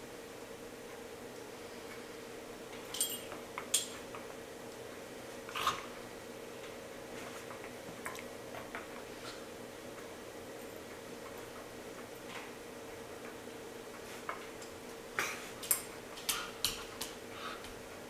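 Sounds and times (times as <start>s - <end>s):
steady low hum: 0.0s - 18.0s
light clicks and clinks: 2.9s - 4.0s.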